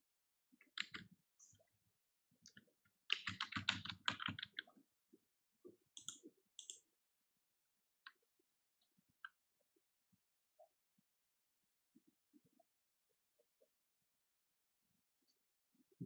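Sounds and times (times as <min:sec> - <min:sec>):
computer keyboard typing: 0:00.8 - 0:01.0, 0:03.1 - 0:04.6.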